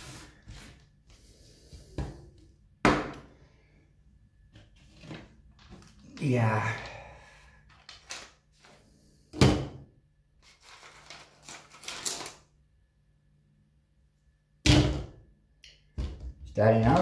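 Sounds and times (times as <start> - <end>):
potting mix rustling and scraping: 10.4 - 12.3.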